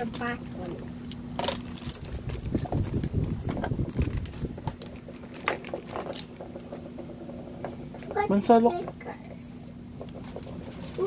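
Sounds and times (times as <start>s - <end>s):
plastic packaging rustling: 1.4s - 6.4s.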